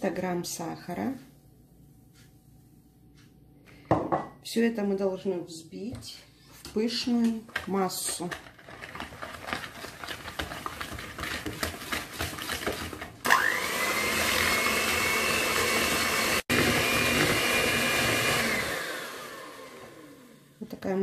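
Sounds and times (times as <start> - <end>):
hand mixer motor whine: 12.6 - 20.5.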